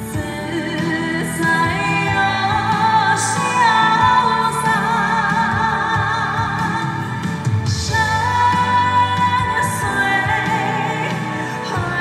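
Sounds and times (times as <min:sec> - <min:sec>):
woman singing a ballad: 0:00.0 - 0:12.0.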